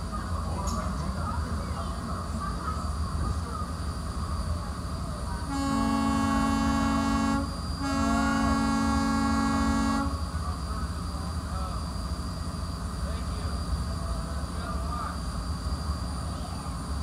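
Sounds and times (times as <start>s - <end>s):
ferry horn blasts: 5.4s - 10.4s.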